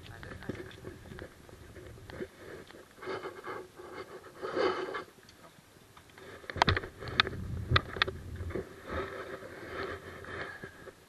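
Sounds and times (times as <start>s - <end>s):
bicycle rolling noise: 0.0s - 3.2s, 6.0s - 11.0s.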